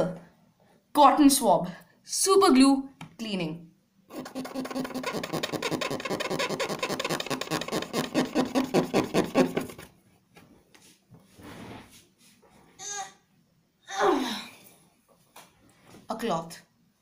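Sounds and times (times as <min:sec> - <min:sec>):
cotton swab scrubbing: 0:04.1 - 0:09.9.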